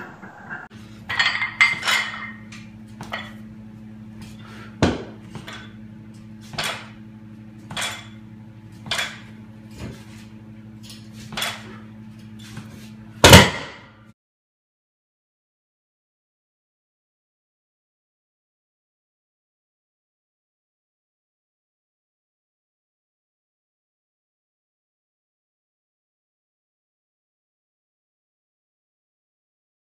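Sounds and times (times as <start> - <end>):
iron weight plates clanking: 0.0 - 3.4
steady low hum: 0.0 - 14.2.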